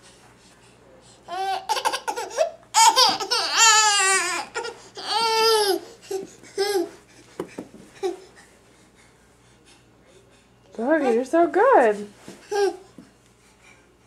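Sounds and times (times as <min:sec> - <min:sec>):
baby squealing and laughing: 0:01.3 - 0:05.8.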